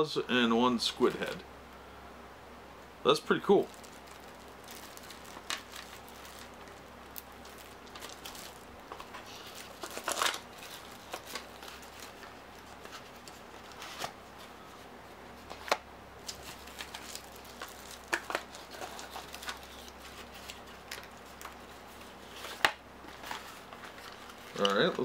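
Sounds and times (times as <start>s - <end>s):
plastic bag crinkling: 3.6s - 13.7s, 16.2s - 22.5s, 23.2s - 25.0s.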